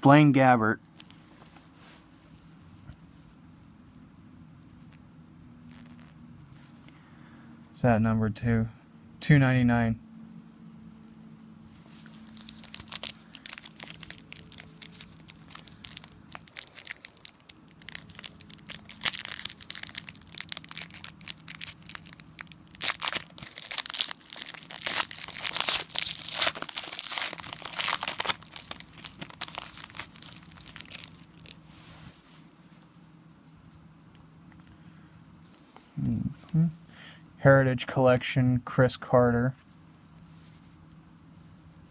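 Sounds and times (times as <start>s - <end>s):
foil wrapper tearing and crinkling: 12.0s - 31.6s.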